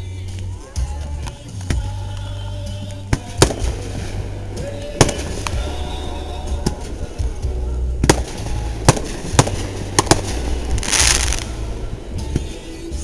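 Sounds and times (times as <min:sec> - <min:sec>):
firework shells bursting: 0:03.2 - 0:04.2, 0:08.0 - 0:11.6.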